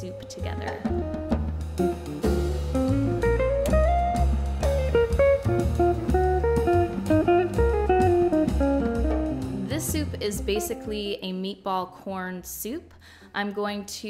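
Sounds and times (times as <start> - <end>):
drum kit: 0.0 - 11.0
bass: 0.0 - 14.0
plucked acoustic guitar melody: 1.0 - 11.0.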